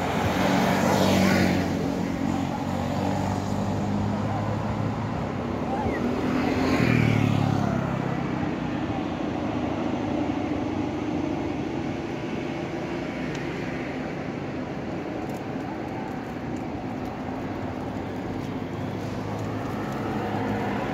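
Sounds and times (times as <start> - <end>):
low engine hum: 3.9 - 20.9
vehicle engine passing by: 18.9 - 20.9.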